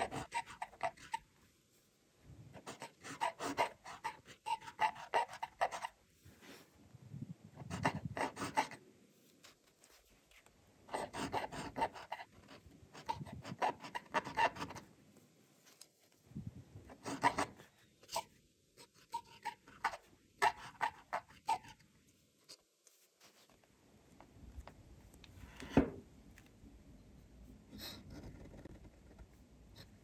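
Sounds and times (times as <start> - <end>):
pen nib scratching paper: 0.0 - 1.3, 2.6 - 6.0, 7.6 - 8.8, 10.9 - 14.9, 16.9 - 18.2, 27.8 - 30.0.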